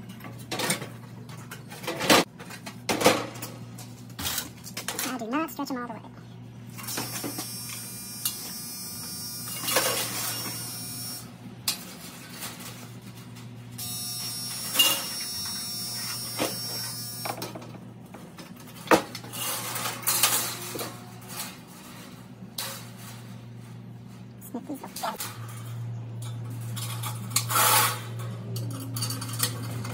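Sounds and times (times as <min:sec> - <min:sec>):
steady electrical hum: 0:00.0 - 0:29.9
wire rattling against metal housing: 0:17.4 - 0:29.9.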